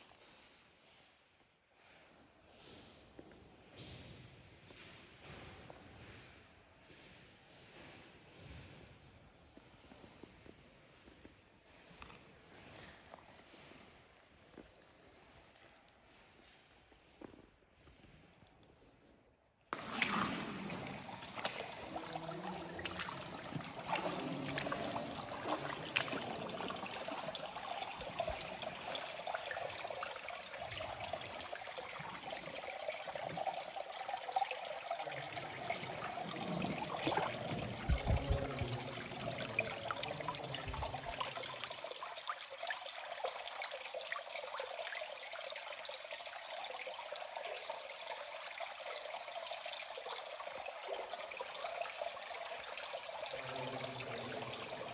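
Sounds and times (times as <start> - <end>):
stream trickling: 11.8 - 16.8, 19.7 - 54.9.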